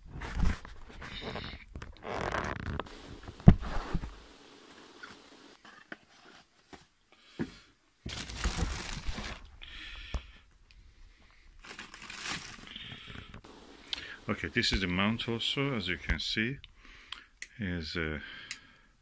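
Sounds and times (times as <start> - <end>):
plastic bag crinkling: 8.1 - 9.6, 11.6 - 13.4.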